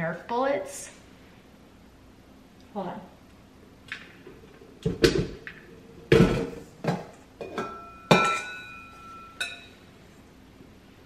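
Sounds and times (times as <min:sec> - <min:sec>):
metal mixer knocks and clunks: 0:06.1 - 0:08.6
steel bowl ringing: 0:07.4 - 0:09.9.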